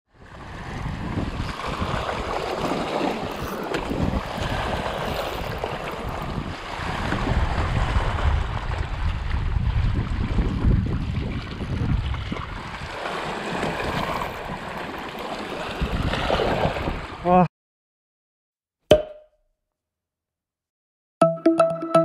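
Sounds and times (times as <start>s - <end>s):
wind buffeting microphone: 0.2s - 14.7s, 15.7s - 17.2s
waves washing over rocks: 0.4s - 9.2s, 11.2s - 17.2s.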